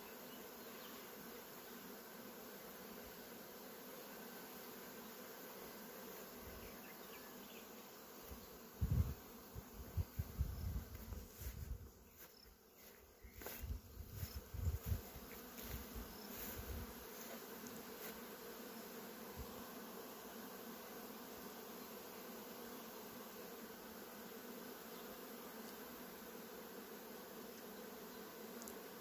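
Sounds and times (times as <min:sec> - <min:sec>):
honeybees humming: 0:00.0 - 0:29.0.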